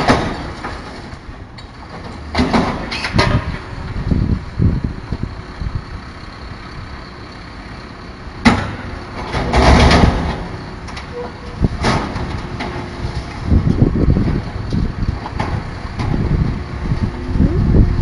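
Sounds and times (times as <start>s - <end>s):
garbage truck engine running: 0.0s - 18.0s
wind buffeting microphone: 3.1s - 6.9s, 13.1s - 18.0s.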